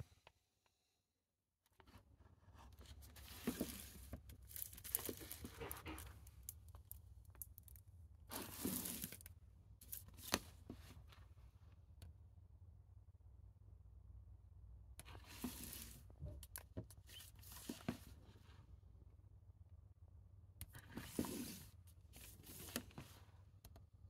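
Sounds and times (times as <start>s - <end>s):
scraping and crinkling plastic: 2.6s - 11.1s, 15.1s - 16.1s.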